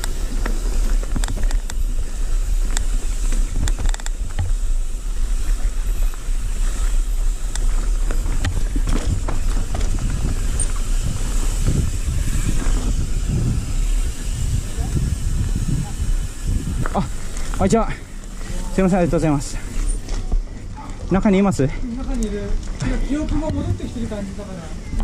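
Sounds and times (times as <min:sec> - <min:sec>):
wind buffeting microphone: 0:00.0 - 0:24.2
bike rattling and clicking: 0:00.0 - 0:25.0.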